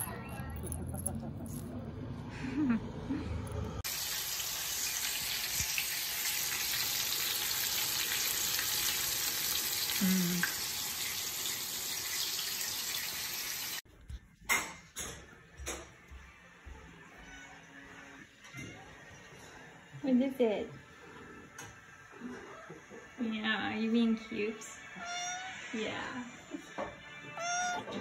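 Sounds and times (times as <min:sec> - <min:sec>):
chicken frying in oil: 0:03.8 - 0:13.8.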